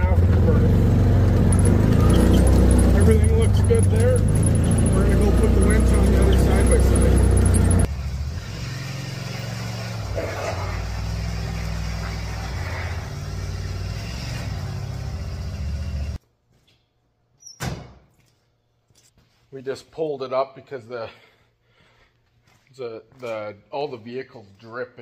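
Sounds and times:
engine idling: 0.0 - 8.2
in-cab driving noise: 0.0 - 16.2.

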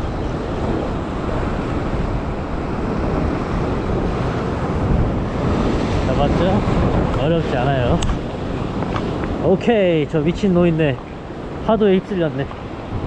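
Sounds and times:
waves washing against rocks: 0.0 - 13.0
wind rumble on microphone: 0.0 - 13.0.

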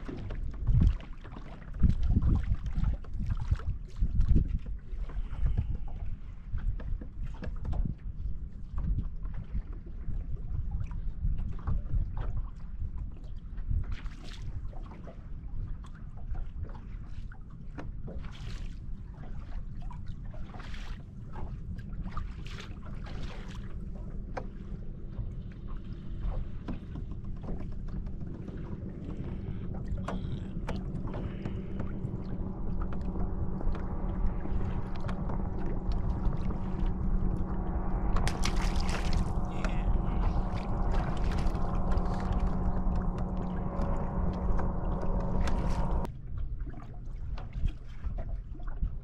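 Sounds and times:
water noise: 0.0 - 49.0
wind: 0.0 - 49.0
electric motor whine: 30.6 - 46.1.

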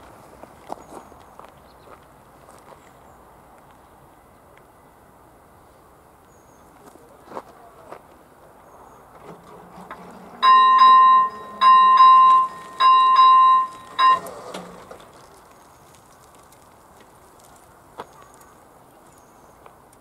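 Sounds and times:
electronic crossing bell ringing: 10.1 - 14.9.

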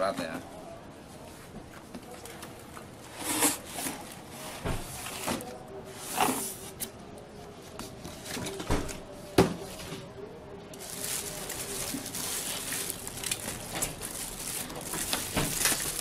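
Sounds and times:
cardboard scraping and rustling: 3.1 - 6.9.

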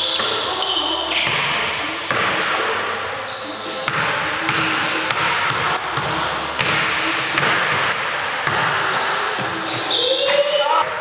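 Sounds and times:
sneaker squeaks: 0.0 - 4.2, 5.6 - 6.7, 7.8 - 10.9
basketball bouncing on wood floor: 3.9 - 8.8.

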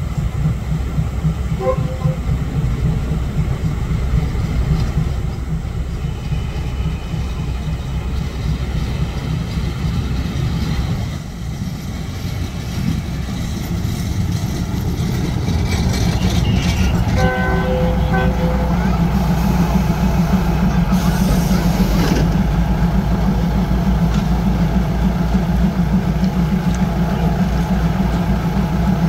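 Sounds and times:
train rumbling: 0.0 - 29.0
train horn: 1.5 - 2.4, 16.2 - 19.5.

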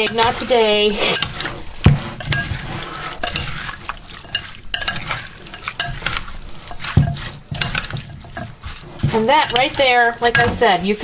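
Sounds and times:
wet squelching of salad: 0.0 - 11.0
spoon clicking against bowl: 4.3 - 6.1.

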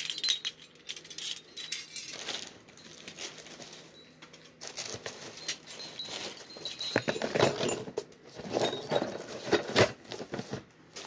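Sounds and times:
wind chime bells jingling: 0.0 - 4.6, 5.2 - 7.8.

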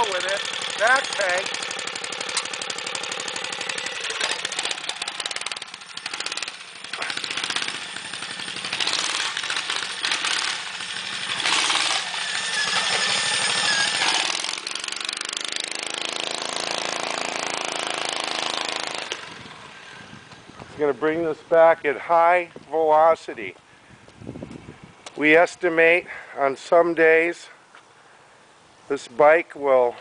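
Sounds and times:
mini bike engine revving: 0.0 - 20.6.

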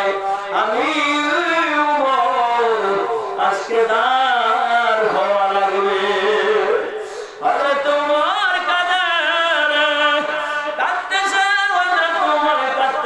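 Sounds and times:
man chanting: 0.0 - 13.0.

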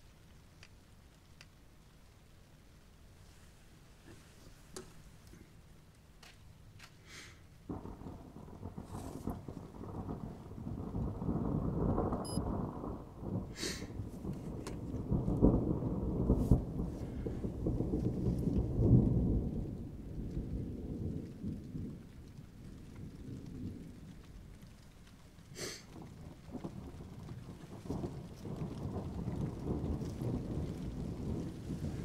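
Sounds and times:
thunder rumbling: 7.4 - 32.0.

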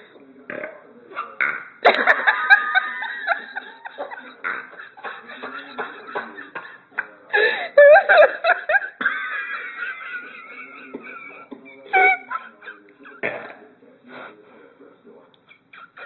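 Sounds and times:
people laughing: 1.8 - 13.4, 15.4 - 16.0.

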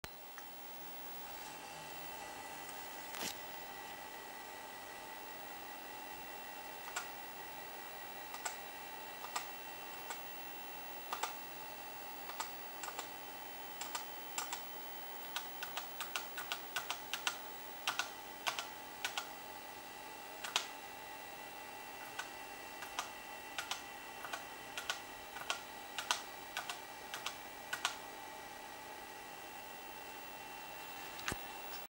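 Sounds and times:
faint electronic whine: 0.0 - 31.9.

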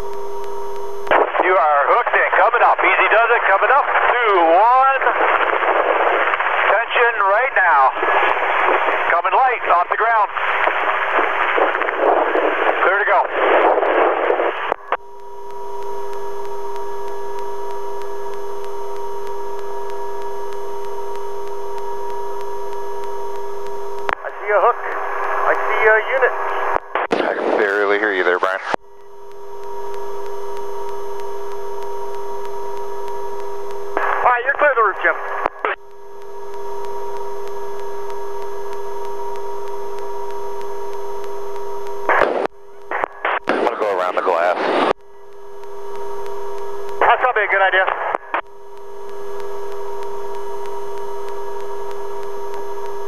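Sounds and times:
radio voice: 1.1 - 15.0, 24.0 - 28.8, 33.9 - 35.8, 42.0 - 44.9, 46.9 - 48.4
helicopter turbine whine: 1.8 - 43.0.

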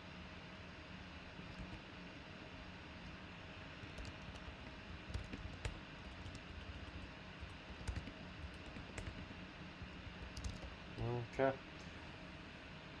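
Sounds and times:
low steady hum: 0.0 - 13.0
keyboard typing: 1.4 - 1.8, 3.8 - 11.1.

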